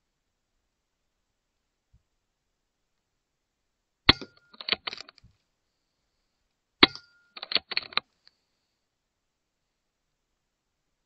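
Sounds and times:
quick run of clicks: 4.2s - 5.3s, 6.9s - 8.1s.

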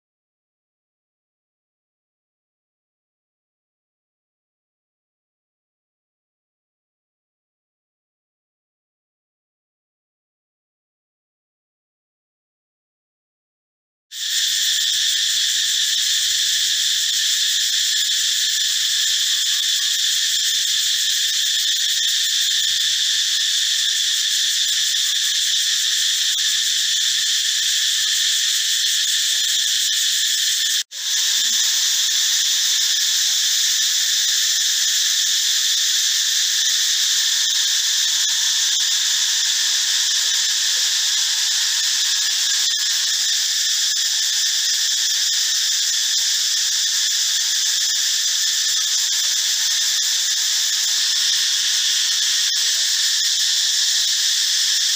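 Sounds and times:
cicada shrill drone: 14.1s - 54.9s.

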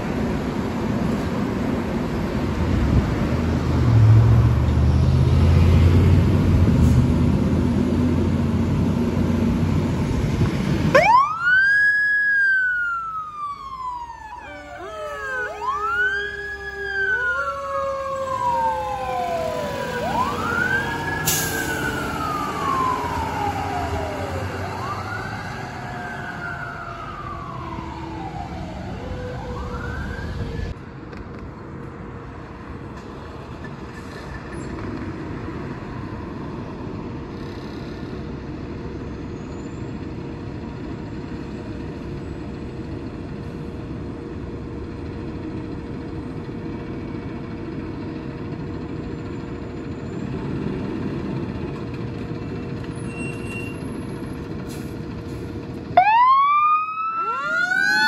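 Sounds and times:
siren wailing: 10.9s - 30.7s, 56.0s - 58.0s.

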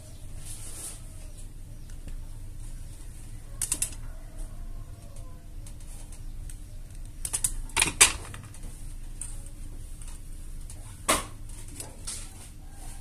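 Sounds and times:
small parts clicking on workbench: 3.6s - 4.1s, 5.1s - 8.6s.

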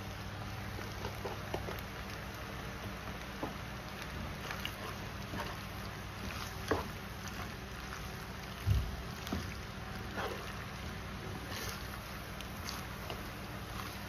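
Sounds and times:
spoon stirring creamy pasta: 4.0s - 14.0s.

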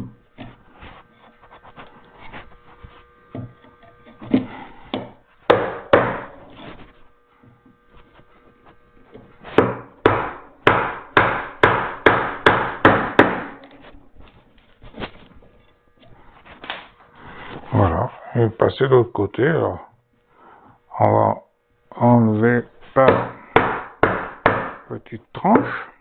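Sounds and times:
mallet striking chisel into wood: 4.2s - 6.4s, 9.6s - 13.6s, 23.0s - 24.9s.

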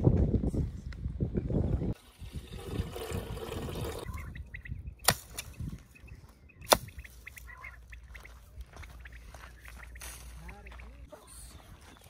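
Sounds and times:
liquid pouring into metal kettle: 2.0s - 4.1s
short bird calls: 4.0s - 12.0s.

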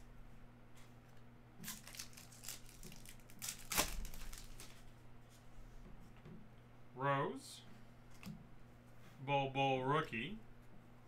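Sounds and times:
foil wrapper ripping open: 1.6s - 4.8s
foil wrapper crinkling: 1.6s - 4.9s.

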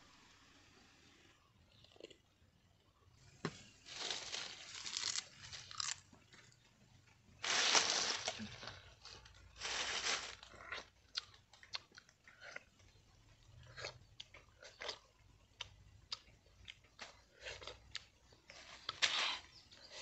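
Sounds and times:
dry leaves crunching and rustling: 3.8s - 6.0s, 7.4s - 10.5s.

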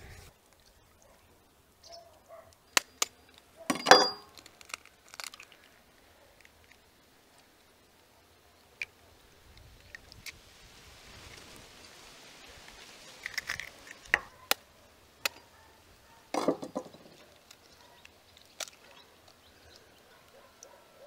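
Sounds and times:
eggshell cracking: 2.7s - 5.8s, 13.1s - 14.6s, 16.4s - 19.8s.

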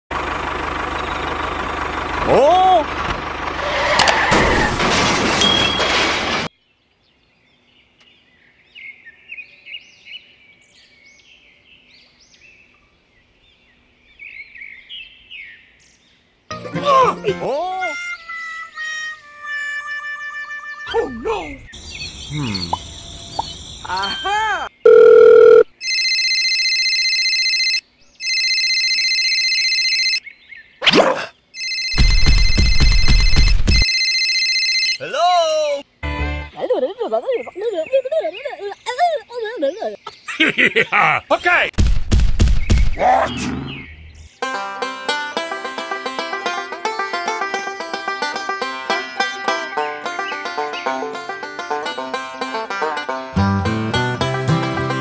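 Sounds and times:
birds chirping: 20.2s - 25.6s, 30.2s - 33.8s, 35.0s - 41.8s, 42.4s - 44.4s, 48.4s - 52.6s
trilling electronic ringing: 24.9s - 30.2s, 31.6s - 35.0s.

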